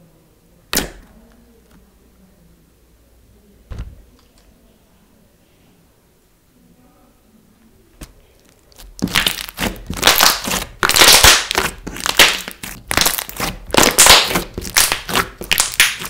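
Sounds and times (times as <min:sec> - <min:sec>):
slime squelching and popping: 0:08.0 - 0:16.0.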